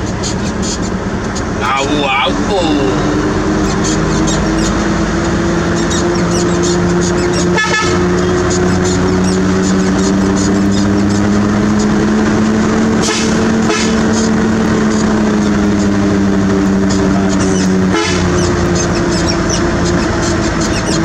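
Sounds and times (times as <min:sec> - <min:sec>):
heavy diesel engine running: 0:00.0 - 0:21.0.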